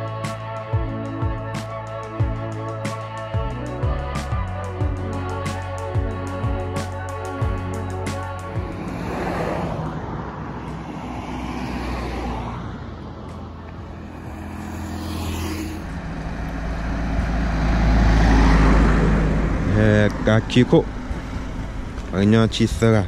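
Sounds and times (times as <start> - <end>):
vehicles passing: 0.0 - 23.0
vehicle engine: 6.1 - 23.0.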